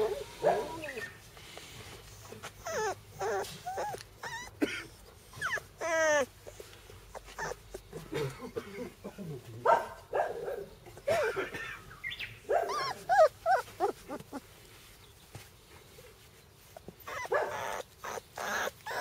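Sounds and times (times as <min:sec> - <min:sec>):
puppies whimpering and yipping: 0:00.0 - 0:01.3, 0:02.0 - 0:08.0, 0:12.5 - 0:14.6, 0:16.6 - 0:19.0.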